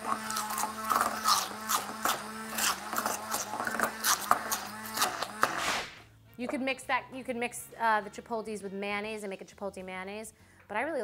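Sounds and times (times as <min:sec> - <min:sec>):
immersion blender motor hum: 0:00.0 - 0:06.0.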